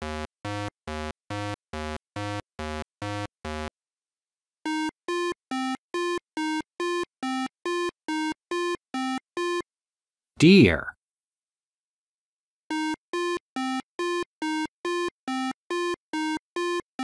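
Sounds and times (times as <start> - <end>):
eight-bit synthesizer notes: 0.0 - 3.7.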